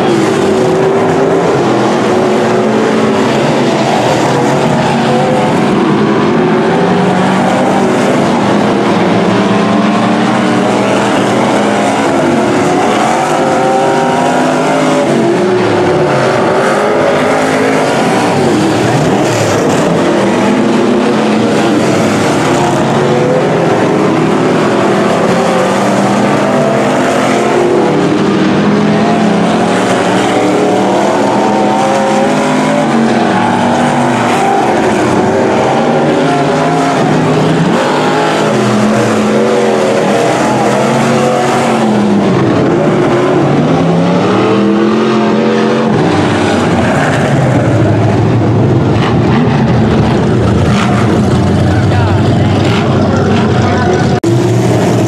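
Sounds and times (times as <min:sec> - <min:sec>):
cars passing by: 0:00.0 - 0:55.0
race car engines: 0:00.0 - 0:55.0.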